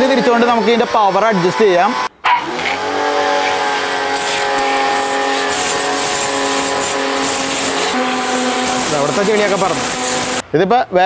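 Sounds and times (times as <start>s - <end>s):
pressure washer pump humming: 0.0s - 10.4s
water jet hissing: 3.4s - 10.4s.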